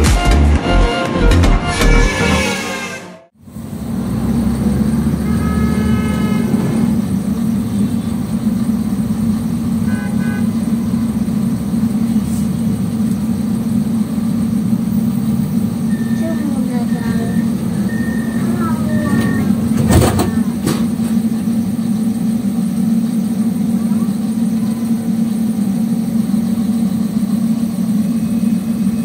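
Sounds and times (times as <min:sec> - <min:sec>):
car horn: 0:00.0 - 0:03.4, 0:05.0 - 0:08.3, 0:09.7 - 0:10.9
tram and traffic rumble: 0:00.0 - 0:29.0
short horn beeps: 0:05.2 - 0:06.9, 0:09.8 - 0:10.6, 0:15.9 - 0:19.6.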